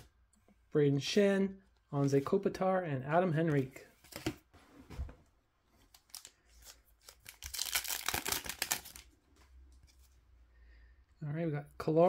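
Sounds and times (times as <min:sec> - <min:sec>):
card pack tearing open: 0:06.0 - 0:09.1
wrapper crinkling: 0:06.0 - 0:09.1.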